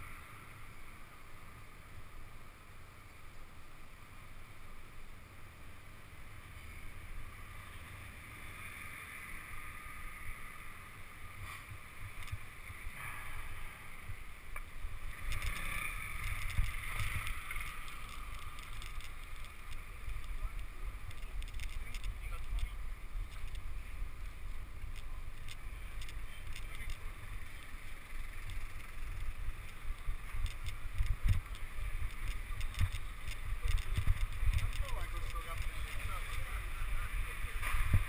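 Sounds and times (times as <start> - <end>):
bicycle tyre rumble: 0.0 - 38.0
wind on microphone: 28.3 - 38.0.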